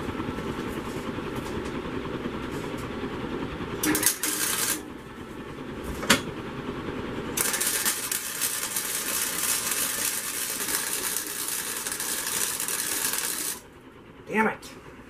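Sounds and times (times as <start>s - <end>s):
welding arc crackling: 3.8s - 4.9s, 7.3s - 13.7s.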